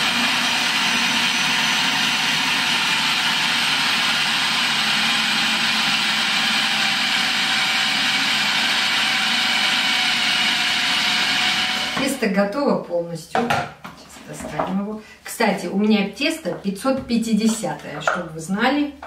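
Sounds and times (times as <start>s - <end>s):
food processor motor running: 0.0s - 12.2s.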